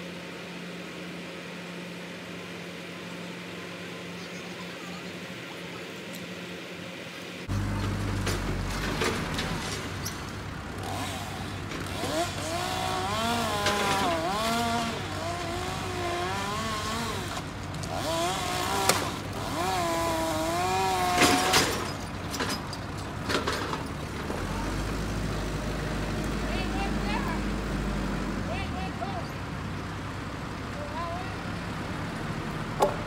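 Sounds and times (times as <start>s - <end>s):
chainsaw cutting wood: 10.8s - 22.0s.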